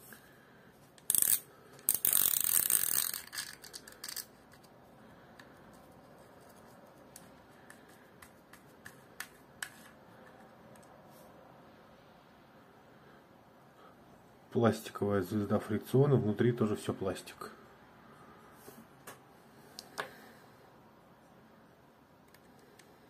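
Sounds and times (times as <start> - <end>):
reel parts clicking and rattling: 1.0 - 4.7.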